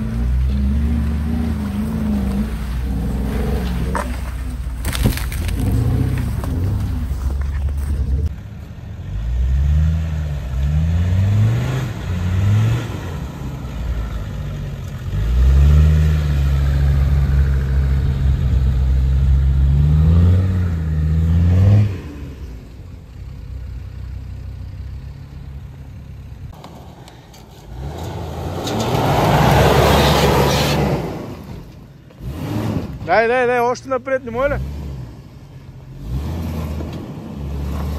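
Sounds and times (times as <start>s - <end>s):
diesel engine revving: 0.0s - 37.9s
engine revving hard: 9.3s - 13.2s, 19.6s - 22.4s, 32.2s - 33.1s, 36.0s - 37.9s.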